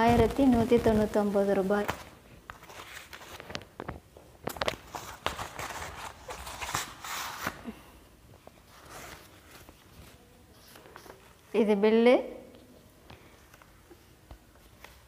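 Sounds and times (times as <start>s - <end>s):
paper rustling and crinkling: 0.0s - 7.8s, 8.4s - 11.4s.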